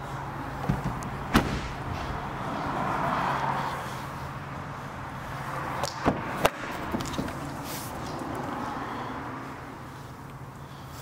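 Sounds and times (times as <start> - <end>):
door latch clicks: 0.6 - 2.1
car tailgate slamming: 0.6 - 3.0.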